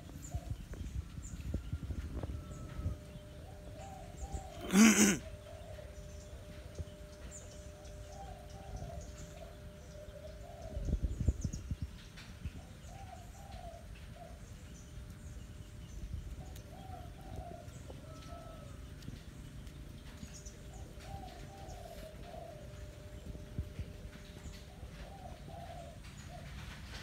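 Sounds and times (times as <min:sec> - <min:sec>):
dove cooing: 0:03.4 - 0:06.1, 0:16.4 - 0:18.7, 0:20.7 - 0:27.0.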